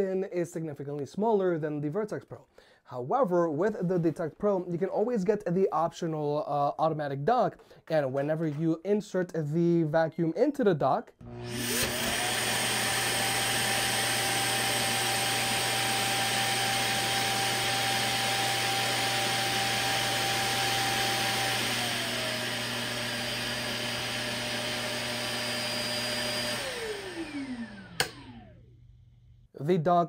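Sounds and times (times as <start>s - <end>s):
suction motor whining: 11.2s - 28.7s
motor winding down: 11.2s - 28.8s.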